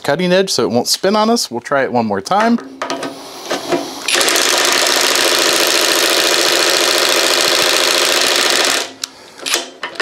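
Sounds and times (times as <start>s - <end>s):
impact wrench hammering: 2.8s - 8.9s.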